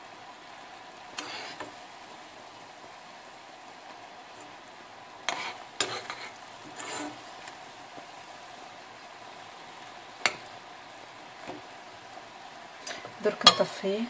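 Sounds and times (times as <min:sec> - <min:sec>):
syrup bubbling in a pan: 0:00.0 - 0:14.0
spoon scraping pan: 0:01.1 - 0:01.8, 0:05.2 - 0:08.1
spoon knocking on pan: 0:10.2 - 0:10.5.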